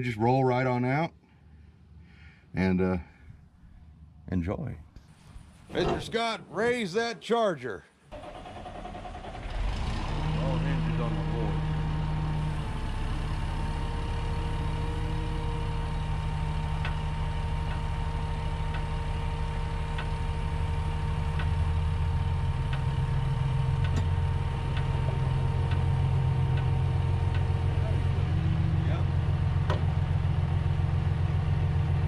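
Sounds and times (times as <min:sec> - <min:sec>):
hydraulic pump motor humming: 0:08.2 - 0:31.8.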